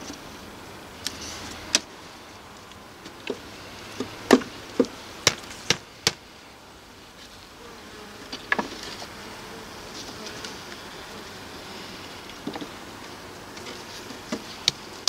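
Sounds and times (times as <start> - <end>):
honeybees humming: 0.0 - 15.0
wooden hive frames knocking: 3.0 - 6.3.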